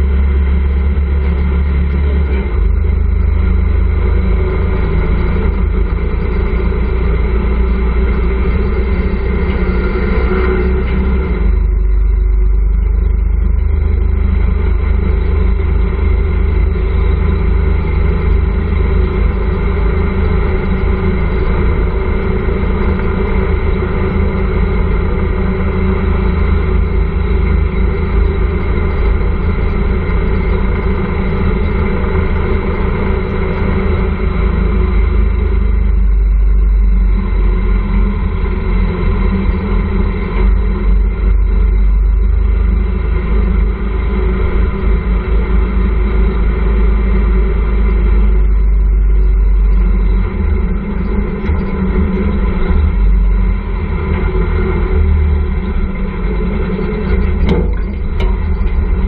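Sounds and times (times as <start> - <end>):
motorcycle engine rumbling: 0.0 - 59.0.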